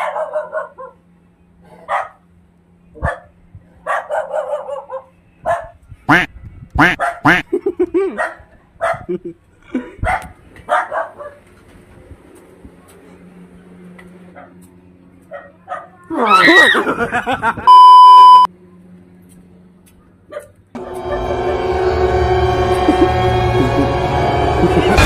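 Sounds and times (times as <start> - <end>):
dog barking: 0.0 - 1.0, 1.7 - 2.2, 3.0 - 5.8, 6.9 - 7.3, 8.2 - 9.1, 10.0 - 11.4, 15.3 - 16.0, 20.3 - 20.6.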